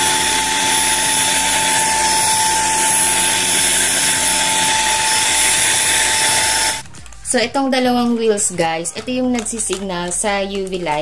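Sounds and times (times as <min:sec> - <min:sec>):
vacuum cleaner motor whirring: 0:00.0 - 0:06.9.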